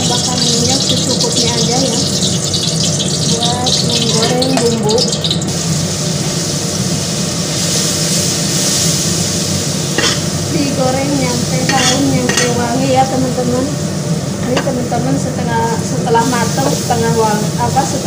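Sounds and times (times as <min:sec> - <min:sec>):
paste sizzling in oil: 0:00.0 - 0:13.5.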